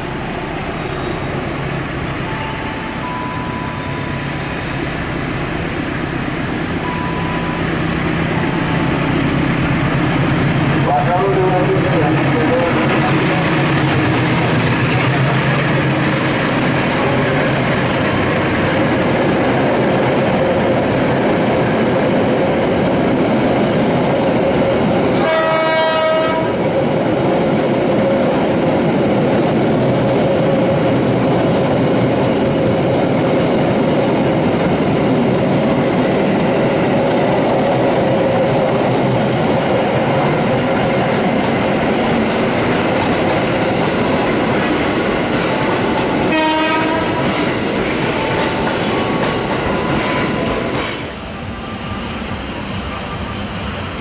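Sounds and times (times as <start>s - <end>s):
diesel locomotive passing: 0.0s - 54.0s
train wheels on rails: 0.0s - 54.0s
short pitched tone: 0.1s - 6.2s, 6.8s - 8.0s.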